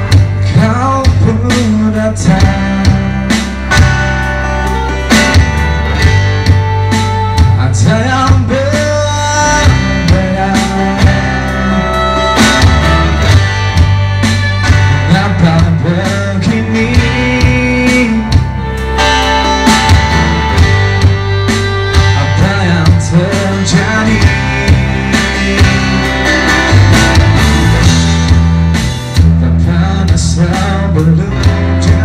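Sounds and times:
bass notes: 0.0 - 32.0
drum kit: 0.0 - 32.0
electric guitar: 0.0 - 32.0
male singer: 0.4 - 3.5, 7.5 - 12.3, 14.9 - 18.6, 22.0 - 26.8, 29.2 - 32.0.

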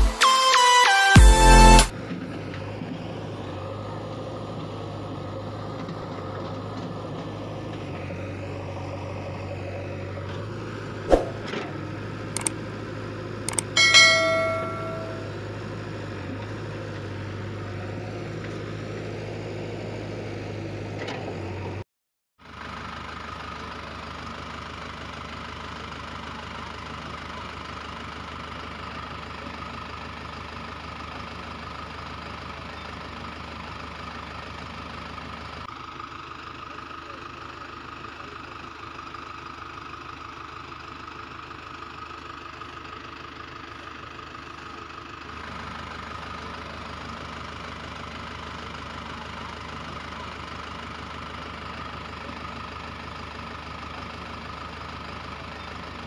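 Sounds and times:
engine idling: 1.5 - 21.8, 22.4 - 56.0
short ringing chime: 13.5 - 15.4.

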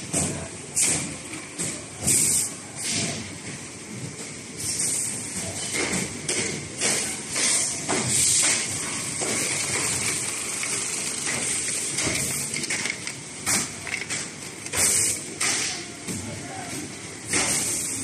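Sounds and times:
steady machine noise: 3.3 - 16.1
mechanical clatter: 5.6 - 15.8.

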